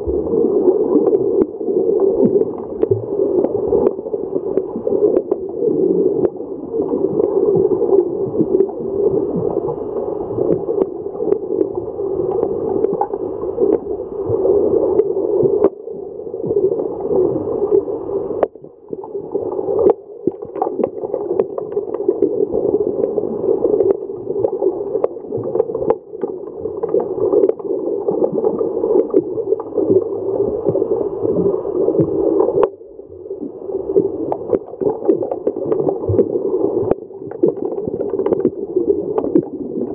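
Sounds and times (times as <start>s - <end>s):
underwater rushing and gurgling: 0.0s - 39.9s
hockey sticks clicking underwater: 36.9s - 39.9s.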